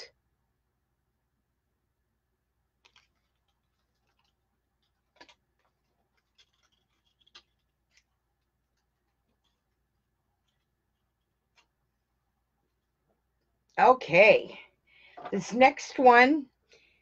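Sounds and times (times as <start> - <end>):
small hard objects clicking: 2.8 - 8.1.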